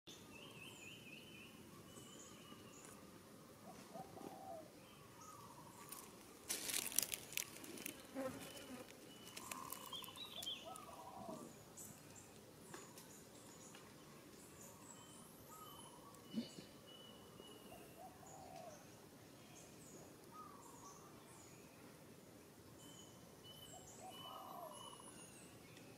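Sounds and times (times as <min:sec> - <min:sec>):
crackling rustle: 0:05.7 - 0:11.0
faint insect buzz: 0:05.8 - 0:10.6
bird chirps and calls: 0:06.8 - 0:13.8, 0:14.4 - 0:18.9, 0:22.8 - 0:25.9.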